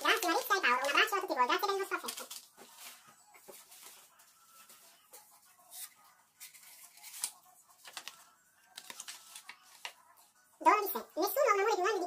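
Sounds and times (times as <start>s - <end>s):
paper rustling and crinkling: 0.0s - 10.2s.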